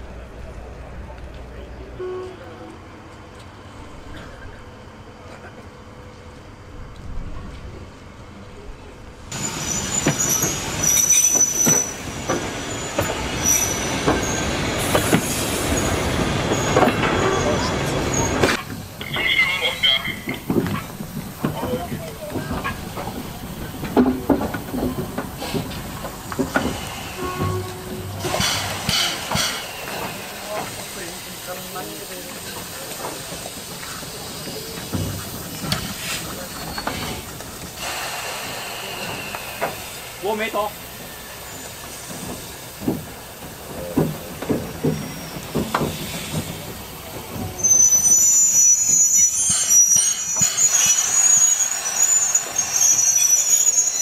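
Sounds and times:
train wheels squealing: 0:09.3 - 0:20.4, 0:24.8 - 0:42.7, 0:43.8 - 0:54.0
wheels clacking over rail joints: 0:09.3 - 0:38.0, 0:41.4 - 0:47.8
steam locomotive hissing steam: 0:09.3 - 0:54.0.

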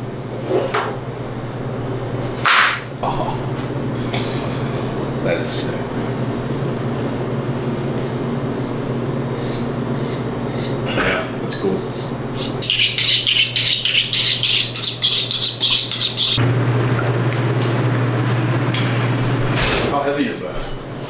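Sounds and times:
steady low hum: 0:00.0 - 0:21.0
knife honed on sharpening steel: 0:11.9 - 0:16.4.

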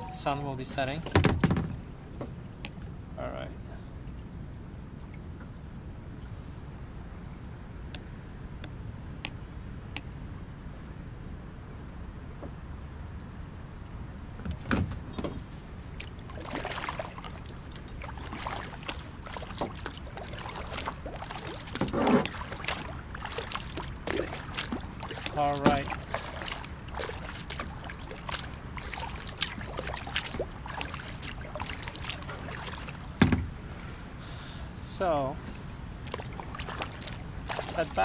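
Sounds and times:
kayak paddle splashing in water: 0:15.8 - 0:33.6, 0:35.4 - 0:38.0.

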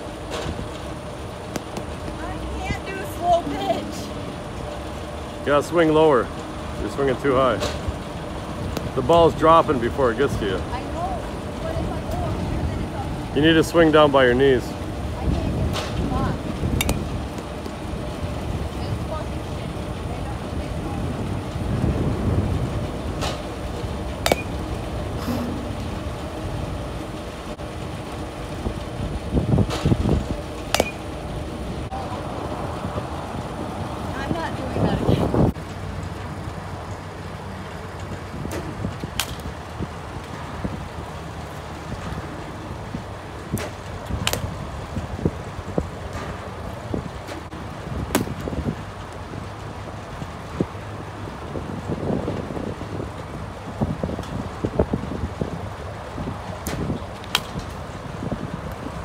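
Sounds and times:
bat hitting softball: 0:01.5 - 0:02.2, 0:16.8 - 0:17.1, 0:24.2 - 0:24.6, 0:25.2 - 0:25.8, 0:30.7 - 0:31.1, 0:39.2 - 0:39.4, 0:48.1 - 0:48.5, 0:57.3 - 0:57.6
wind rumble on microphone: 0:05.5 - 0:59.0
low rumble: 0:14.7 - 0:35.6.

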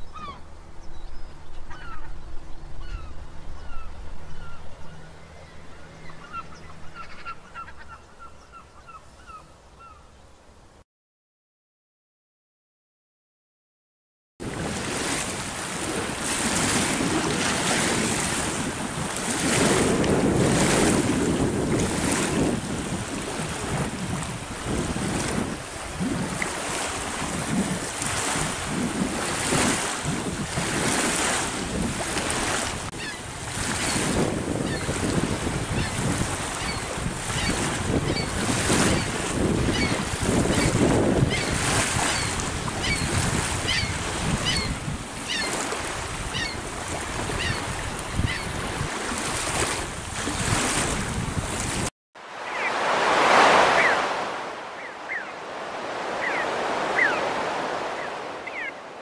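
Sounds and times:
surf: 0:14.4 - 0:59.0
wind buffeting microphone: 0:14.4 - 0:59.0.

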